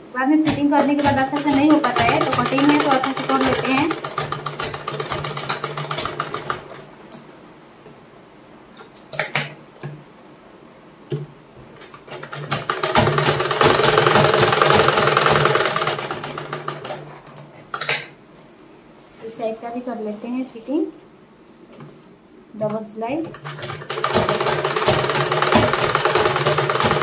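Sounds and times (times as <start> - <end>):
sewing machine stitching: 0.4 - 6.8, 12.1 - 17.1, 23.4 - 27.0.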